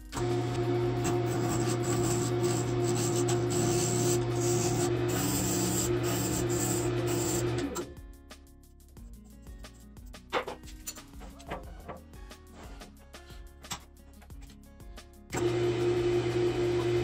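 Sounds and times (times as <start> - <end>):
wood lathe motor humming: 0.2 - 7.8, 15.4 - 17.0
sandpaper rubbing spinning wood: 1.0 - 7.6.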